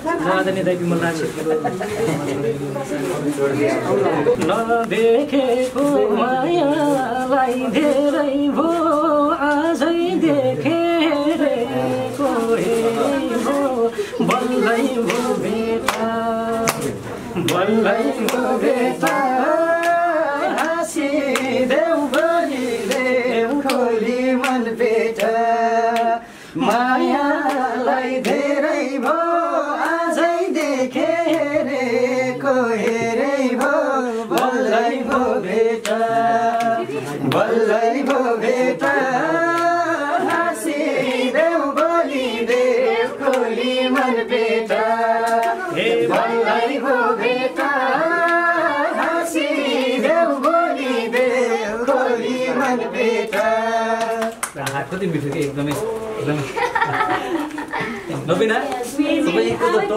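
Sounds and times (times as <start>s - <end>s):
people singing folk song: 1.2s - 59.9s
hand claps: 14.2s - 29.2s, 29.8s - 31.6s, 32.8s - 46.3s, 47.6s - 56.0s.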